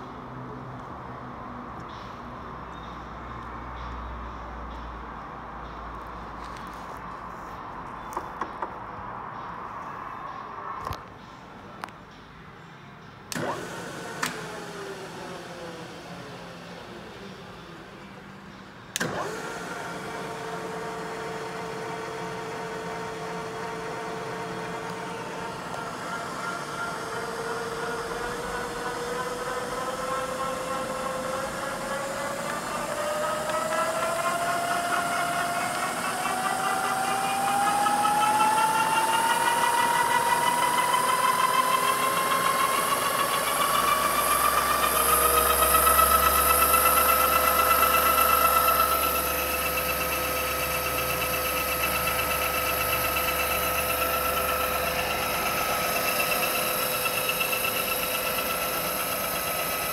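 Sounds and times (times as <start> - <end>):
milling machine spindle whine: 19.0 - 59.9.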